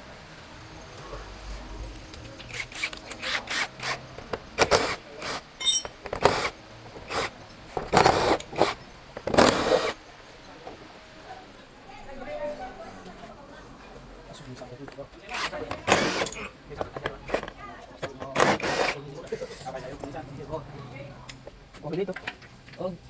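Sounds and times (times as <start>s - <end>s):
power tool bursts: 15.3s - 16.4s, 18.4s - 19.0s.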